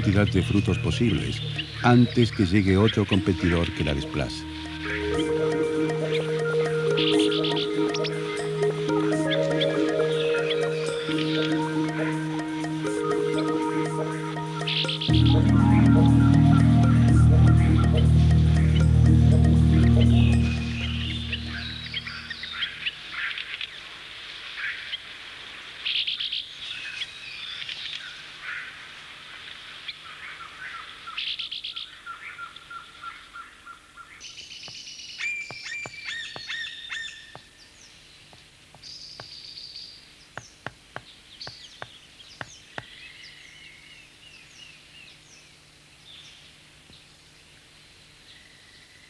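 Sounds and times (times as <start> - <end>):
birds calling: 0.0 - 23.4.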